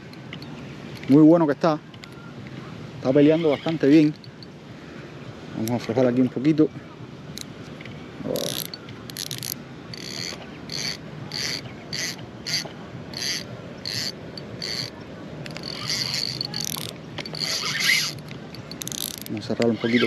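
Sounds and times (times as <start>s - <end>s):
fishing reel whirring: 8.3s - 20.0s.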